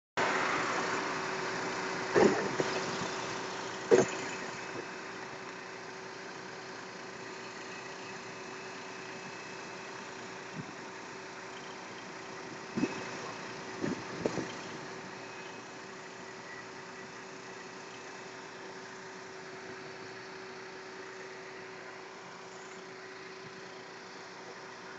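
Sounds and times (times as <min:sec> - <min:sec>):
truck engine idling: 0:00.3 - 0:24.9
sharp knocks and thumps: 0:02.2 - 0:03.1, 0:03.9 - 0:04.8.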